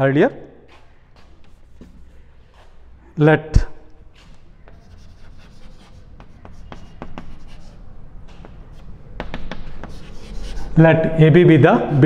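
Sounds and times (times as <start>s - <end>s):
chalk tapping and scratching: 0.6s - 2.9s, 3.9s - 10.8s.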